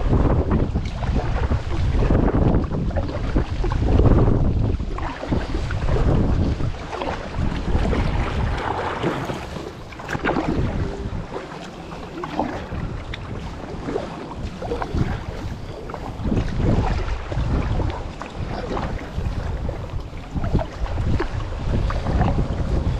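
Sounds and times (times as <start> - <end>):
water splashing and sloshing: 0.0 - 22.9
wind buffeting microphone: 0.0 - 22.9.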